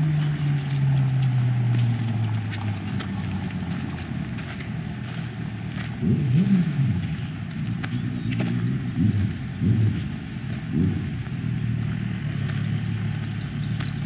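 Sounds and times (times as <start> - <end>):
steady low rumble: 0.0 - 14.0.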